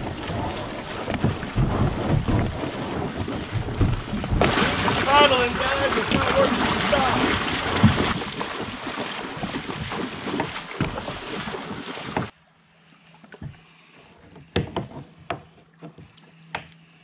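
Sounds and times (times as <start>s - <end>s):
wind on microphone: 0.0s - 8.8s
water splashing around wading legs: 0.0s - 12.3s.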